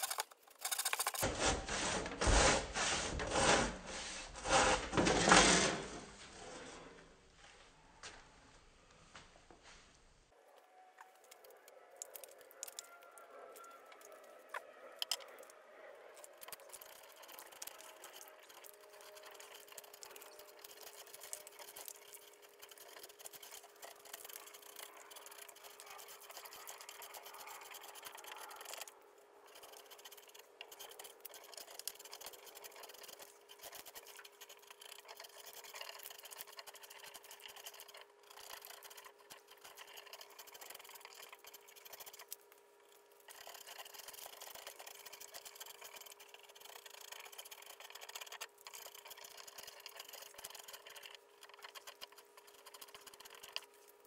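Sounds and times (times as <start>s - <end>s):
bark crackling: 11.2s - 42.4s.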